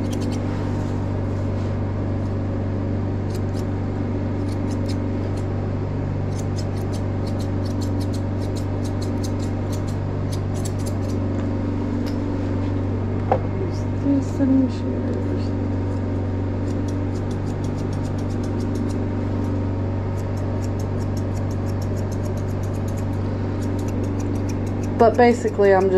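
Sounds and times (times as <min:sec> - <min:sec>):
grooming shears snipping hair: 0:00.0 - 0:01.0, 0:03.3 - 0:03.8, 0:04.4 - 0:05.5, 0:06.3 - 0:11.3, 0:11.9 - 0:12.4, 0:16.6 - 0:25.9
low machine hum: 0:00.0 - 0:25.9.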